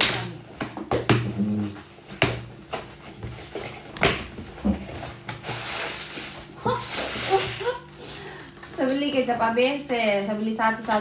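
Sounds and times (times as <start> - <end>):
cardboard parcel being torn open: 4.6 - 7.9.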